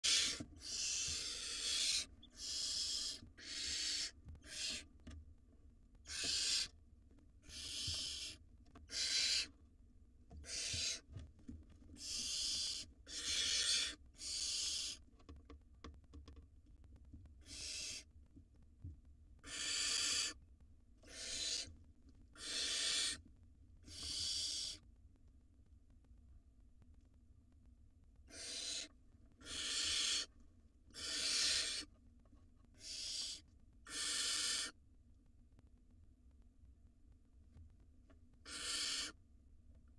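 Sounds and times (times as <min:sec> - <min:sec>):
owl nestlings hissing: 0:00.0 - 0:04.9, 0:06.1 - 0:06.7, 0:07.4 - 0:09.5, 0:10.4 - 0:11.0, 0:12.0 - 0:15.0, 0:17.4 - 0:18.1, 0:19.4 - 0:20.4, 0:21.0 - 0:21.7, 0:22.4 - 0:23.2, 0:23.8 - 0:24.8, 0:28.3 - 0:30.3, 0:30.9 - 0:31.9, 0:32.8 - 0:34.8, 0:38.4 - 0:39.2.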